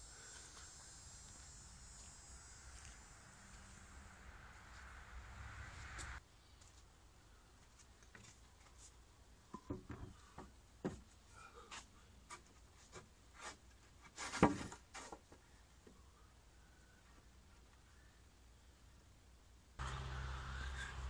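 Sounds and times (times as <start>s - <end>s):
wood knocking and scraping on wood: 9.5s - 11.0s, 12.3s - 15.3s.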